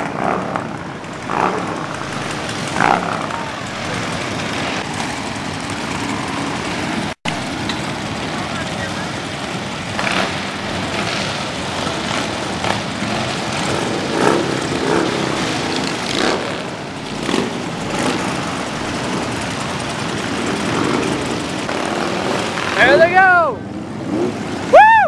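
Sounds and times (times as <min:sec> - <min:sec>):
motorcycles passing: 0:00.0 - 0:25.0.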